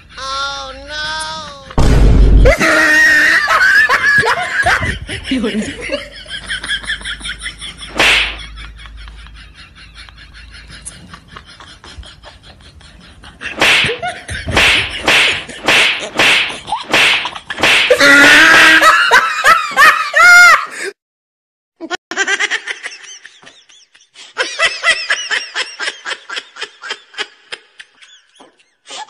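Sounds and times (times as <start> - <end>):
loud slap-like smacks: 7.9 - 8.4, 13.6 - 18.0.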